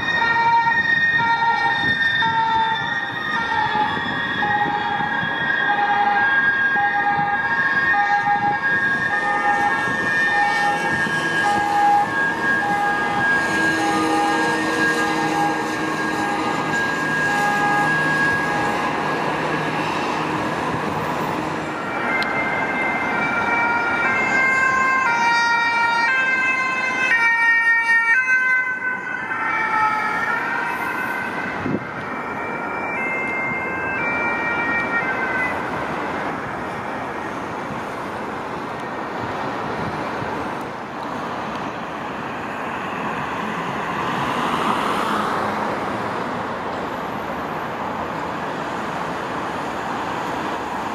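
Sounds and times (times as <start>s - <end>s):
two-tone ambulance siren: 0.0s - 38.9s
traffic noise: 0.0s - 50.9s.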